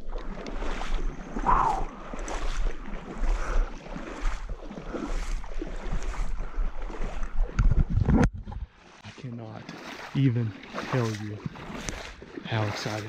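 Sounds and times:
wind on microphone: 0.0 - 4.4, 5.2 - 8.7
water sloshing and splashing: 0.0 - 13.0.

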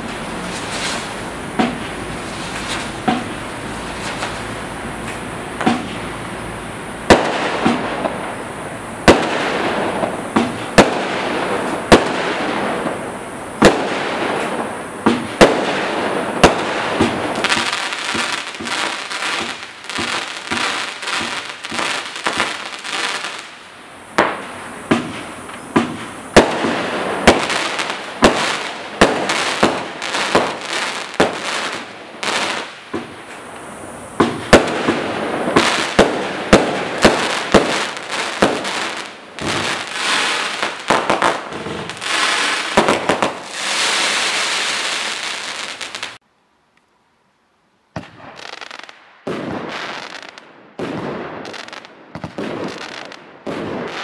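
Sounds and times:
firework bangs: 0.0 - 6.4, 7.0 - 46.2, 48.0 - 54.0
firework crackling: 0.0 - 46.2, 48.0 - 54.0.

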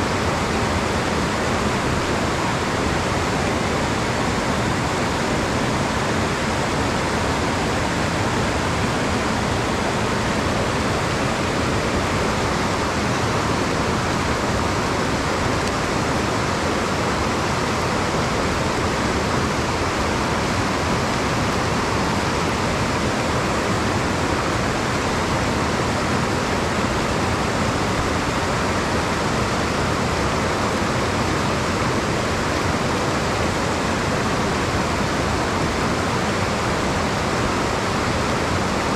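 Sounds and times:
stream rushing over rocks: 0.0 - 38.9.

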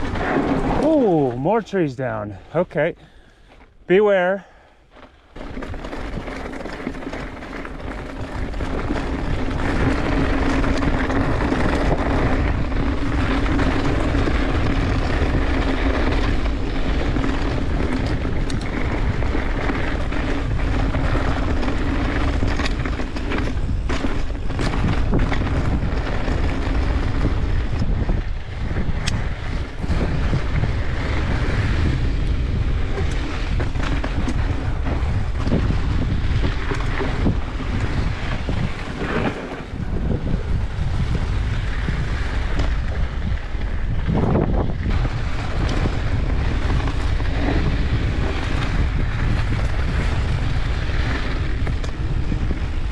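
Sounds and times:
low rolling rumble: 0.0 - 2.8
wind buffeting microphone: 0.0 - 3.8, 5.2 - 52.9
bike knocks and rattles: 4.9 - 52.9.

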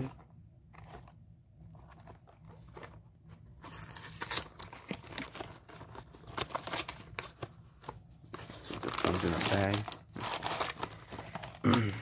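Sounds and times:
plastic wrappers crinkling: 8.4 - 12.0.

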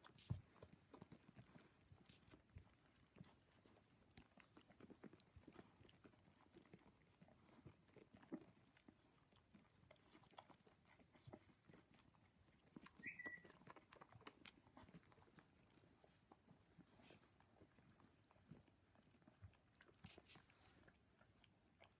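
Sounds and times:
puppies suckling: 0.0 - 21.9
puppy squeak: 13.0 - 13.6.

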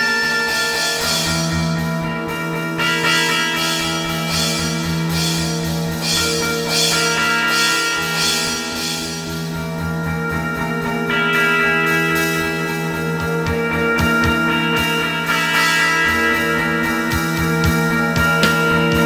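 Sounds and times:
droning guitar chord: 0.0 - 19.0
cymbal-like hiss: 3.6 - 9.6
pulsing low beat: 16.5 - 19.0.

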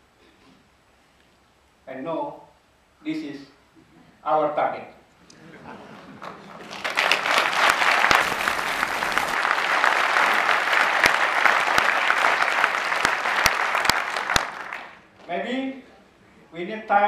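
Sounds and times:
audience applauding: 5.6 - 15.1.

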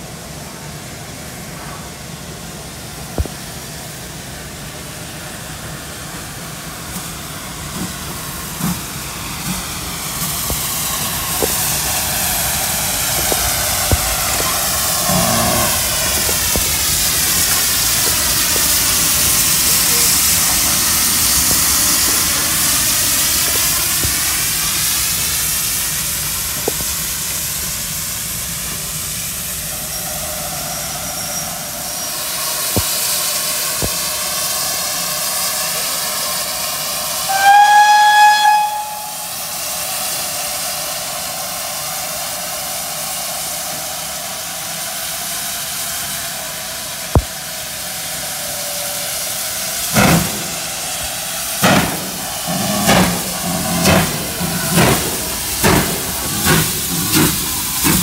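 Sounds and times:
steam locomotive hissing steam: 0.0 - 58.0
steam whistle blast: 37.2 - 39.8.

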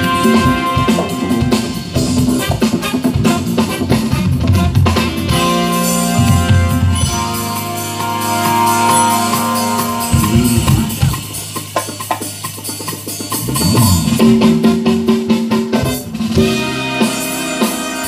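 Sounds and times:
drum and hand-percussion hits: 0.0 - 7.5, 8.4 - 18.0
held keyboard chords: 0.0 - 18.0
jazz band playing: 0.0 - 18.0.

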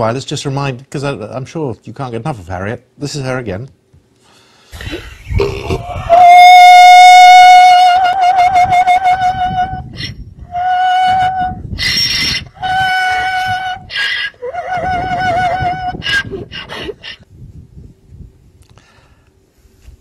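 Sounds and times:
donkey braying: 4.8 - 17.2.

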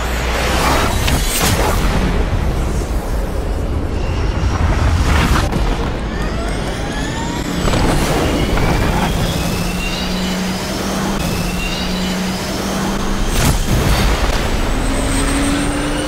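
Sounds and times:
fighter jet engines roaring: 0.0 - 16.0
rising whines: 0.0 - 16.0.

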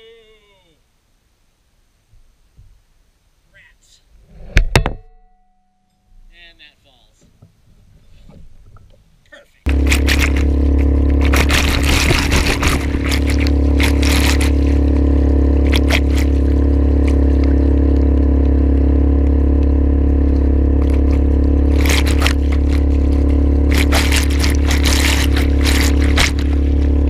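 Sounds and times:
outboard motor running: 9.6 - 27.0
water rushing past hull: 9.7 - 27.0
water splashing: 9.7 - 27.0.

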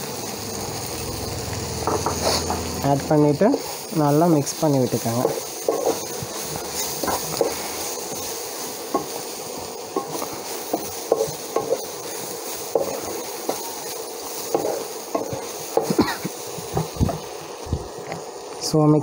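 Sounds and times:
food sizzling: 0.0 - 19.0
spatula scraping frying pan: 1.8 - 2.8, 5.0 - 13.8.

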